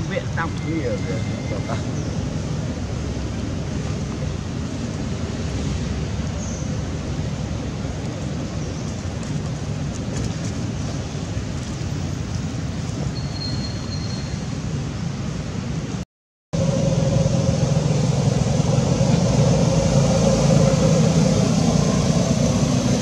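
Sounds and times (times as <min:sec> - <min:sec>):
steady rushing noise: 0:16.6 - 0:23.0.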